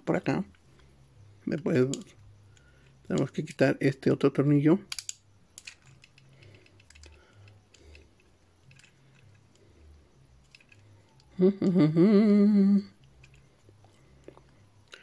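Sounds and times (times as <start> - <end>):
man humming: 11.3 - 13.0.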